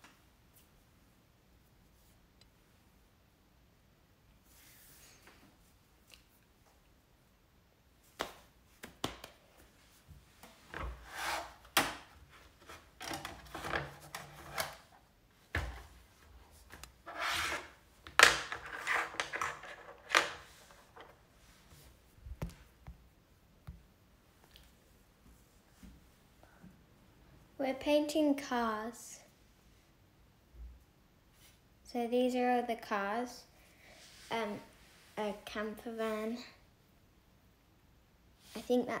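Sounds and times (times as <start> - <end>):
objects rubbing and scraping: 10.6 - 15.0, 16.6 - 17.8, 18.4 - 21.2.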